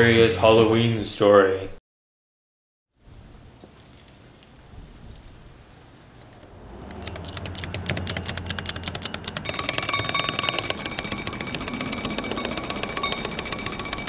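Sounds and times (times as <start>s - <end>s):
toy drum clattering roll: 6.2s - 14.0s
steady high ringing tone: 6.3s - 14.0s.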